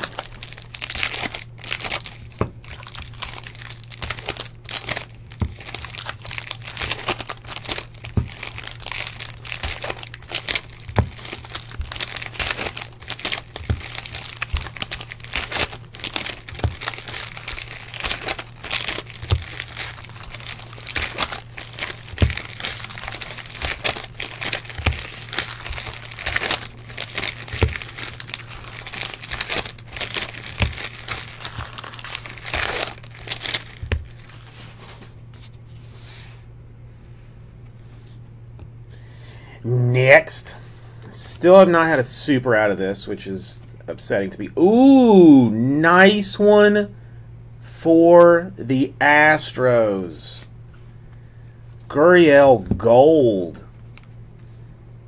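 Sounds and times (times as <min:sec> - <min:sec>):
foil wrappers crinkling and tearing: 0:00.0 - 0:35.2
steady low hum: 0:00.0 - 0:55.0.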